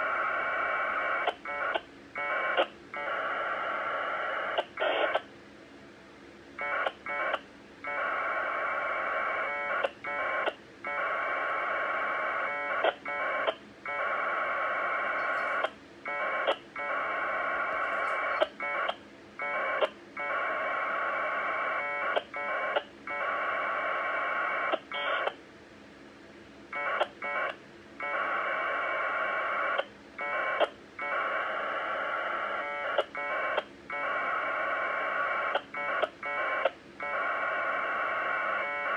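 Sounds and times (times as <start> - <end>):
warbling two-tone modem bursts: 6.6 - 25.3, 26.8 - 38.9.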